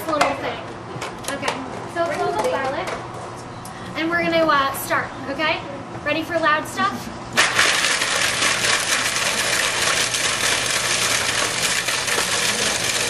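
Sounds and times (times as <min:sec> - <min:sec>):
bread pieces rattling in bowl: 0:07.4 - 0:13.0
food processor running: 0:07.4 - 0:13.0.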